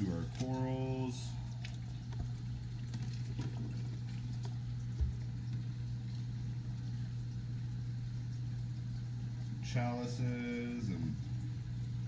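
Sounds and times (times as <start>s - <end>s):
aquarium pumps humming: 0.0s - 12.0s.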